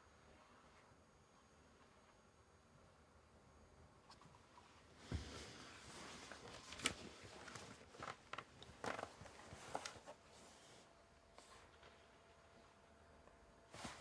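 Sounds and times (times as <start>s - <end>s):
cloth and bedding rustling: 4.6s - 14.0s.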